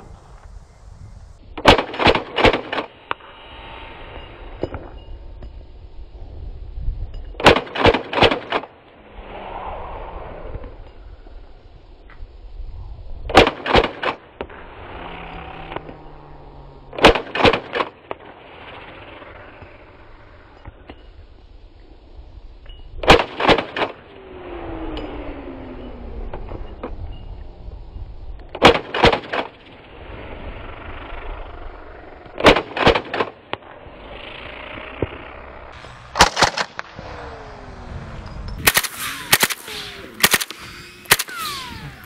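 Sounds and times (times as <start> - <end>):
suppressed rifle shots: 1.6 - 3.2, 7.4 - 8.8, 13.3 - 14.6, 16.9 - 18.4, 23.0 - 24.1, 28.5 - 29.8, 32.3 - 33.7, 36.0 - 37.1, 38.5 - 42.0.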